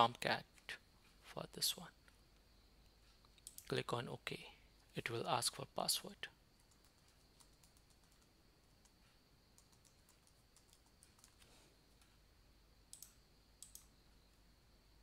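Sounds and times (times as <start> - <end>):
faint keyboard typing: 2.0 - 3.8, 6.1 - 14.4
mouse clicks: 2.8 - 3.7, 12.9 - 13.9.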